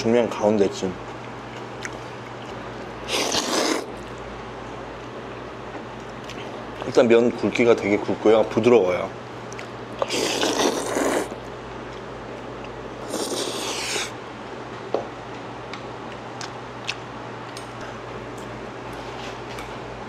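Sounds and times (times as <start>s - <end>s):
person slurping noodles: 3.0s - 3.9s, 10.0s - 11.4s, 13.0s - 14.1s.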